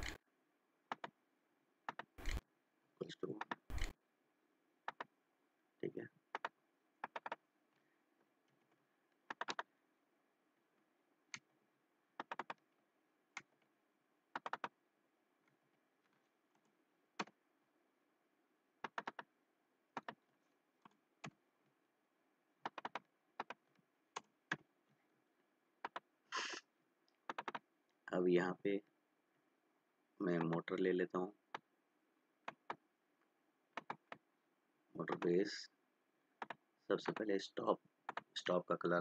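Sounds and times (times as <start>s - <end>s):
keyboard keystrokes: 14.4s - 14.7s, 18.8s - 19.3s, 27.3s - 27.6s.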